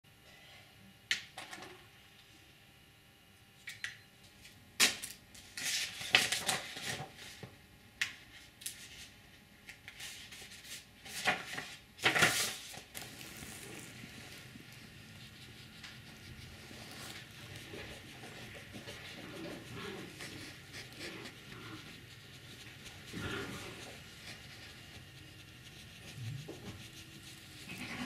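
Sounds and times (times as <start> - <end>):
paper rustling: 9.9 - 21.0.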